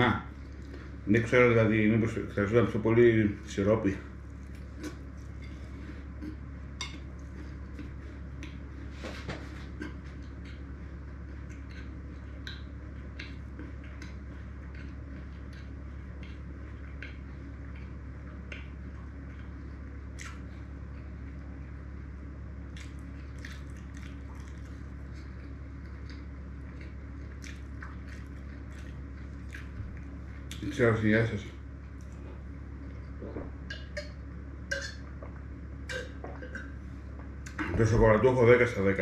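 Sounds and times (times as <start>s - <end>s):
steady low hum: 0.0s - 39.0s
person chewing: 9.7s - 19.5s, 20.1s - 21.2s, 22.7s - 30.7s.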